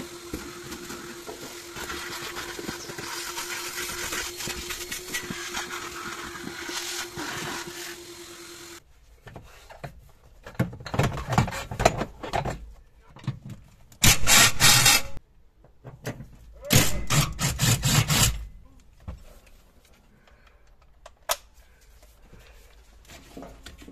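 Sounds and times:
vacuum cleaner running: 0.0s - 8.8s.

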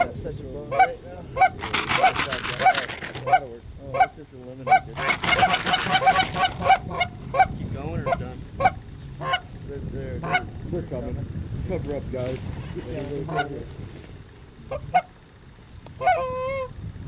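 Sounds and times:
fast clucking chatter: 0.0s - 11.2s, 12.4s - 13.7s
geese honking: 0.7s - 9.5s, 10.2s - 10.5s, 13.2s - 13.6s, 14.7s - 15.2s, 16.0s - 16.7s.

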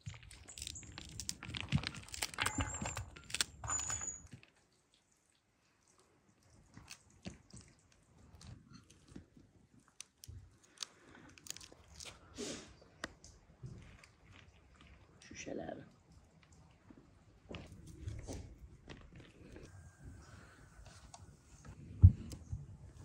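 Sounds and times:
fruit rind crunching and tearing: 0.0s - 3.6s, 6.6s - 12.3s.

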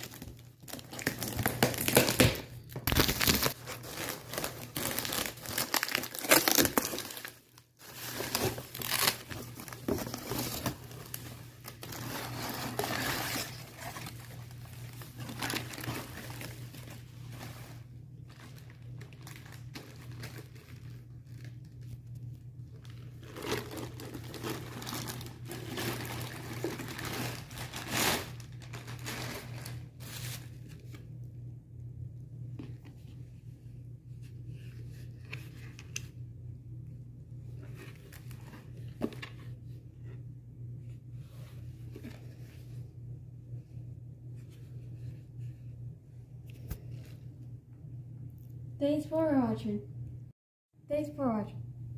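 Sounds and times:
plastic packaging crinkling: 0.0s - 30.4s.

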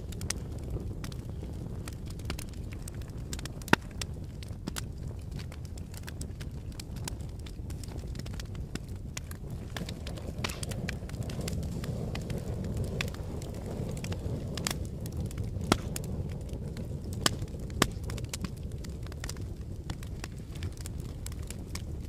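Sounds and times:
sharp pops of fire: 0.0s - 22.0s
wood fire crackling: 0.0s - 22.0s.

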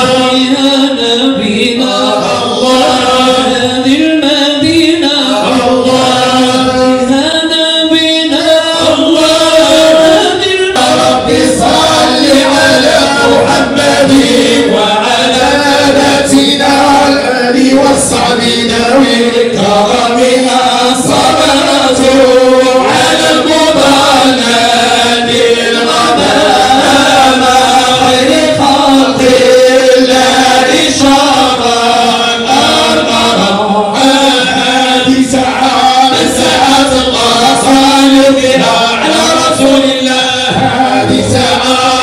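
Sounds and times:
men chanting together: 0.0s - 42.0s.

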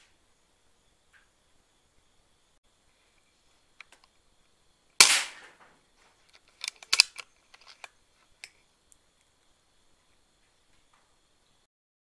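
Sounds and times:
air rifle action clicking: 6.3s - 8.6s.

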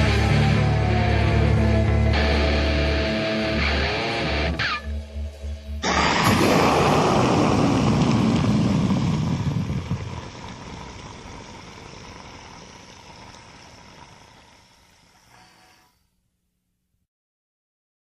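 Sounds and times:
distorted electric guitar chord: 0.0s - 6.7s.

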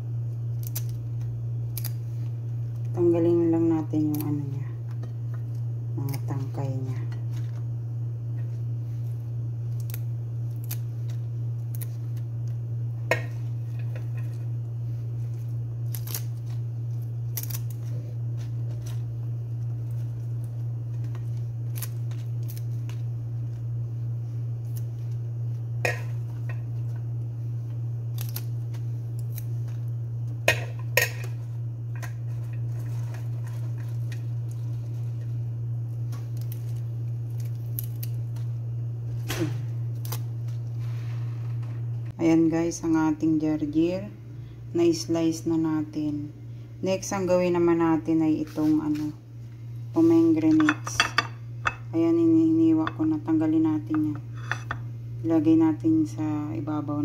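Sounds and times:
steady low hum: 0.0s - 57.0s
scissors snipping stems: 0.5s - 1.0s, 1.7s - 2.0s, 4.0s - 4.5s, 15.8s - 16.4s, 17.0s - 17.8s, 28.1s - 28.5s.

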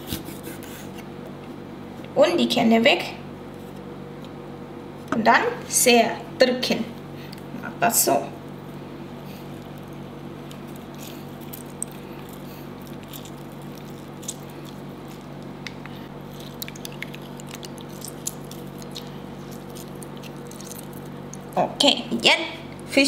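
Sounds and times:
food squished by hand: 9.4s - 21.6s.

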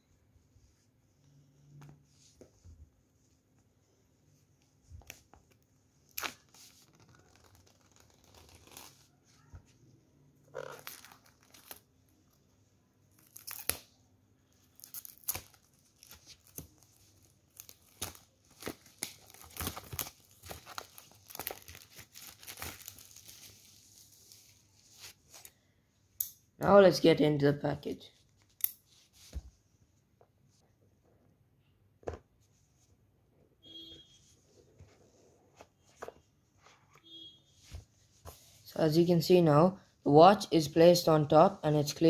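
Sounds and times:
plastic wrap crackling and tearing: 6.1s - 9.5s, 10.6s - 11.9s, 13.1s - 14.0s, 14.6s - 24.2s.

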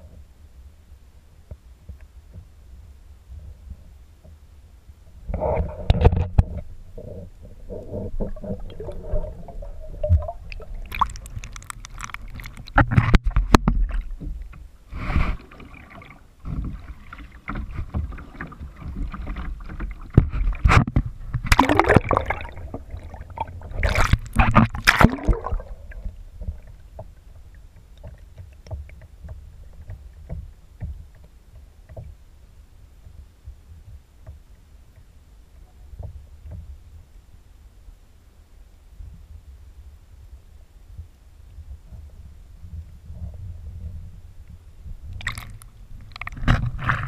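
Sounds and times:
underwater muffled rumble: 0.0s - 47.0s
faint underwater clicks: 1.4s - 2.6s, 5.1s - 32.2s, 33.0s - 36.8s, 40.9s - 47.0s
water splashing and sloshing: 5.1s - 32.3s, 40.9s - 47.0s.

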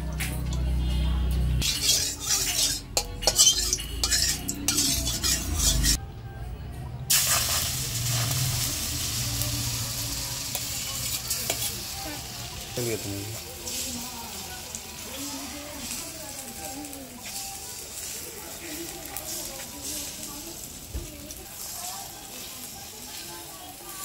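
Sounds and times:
batter sizzling in hot oil: 1.6s - 6.0s, 7.1s - 24.0s
utensils clattering and scraping: 1.6s - 6.0s, 10.5s - 12.2s.

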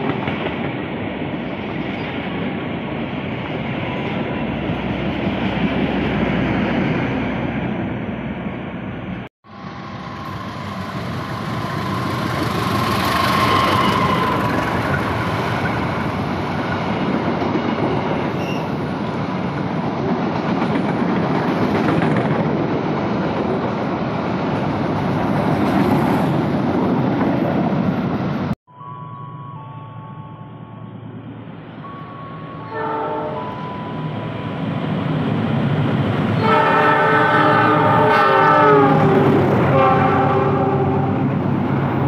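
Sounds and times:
train rumbling on rails: 0.0s - 42.0s
faint high tone: 28.7s - 32.7s.

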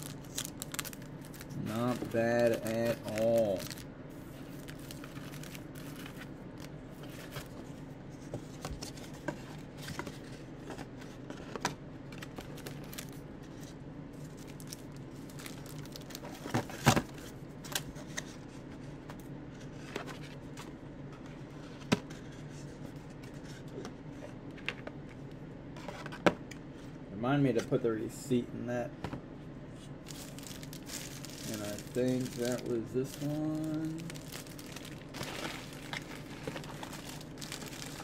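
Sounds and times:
steady low hum: 0.0s - 38.0s
paper rustling: 30.1s - 38.0s.

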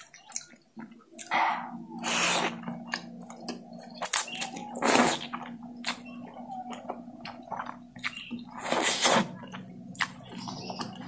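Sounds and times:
noodles slurped: 4.1s - 6.0s, 8.5s - 9.4s.

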